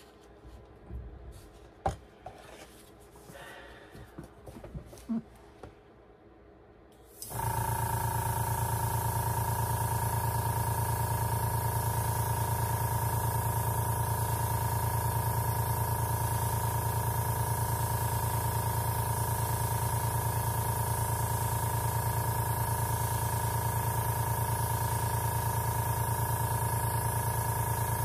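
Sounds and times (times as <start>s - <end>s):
compressor motor hum: 7.1s - 28.0s.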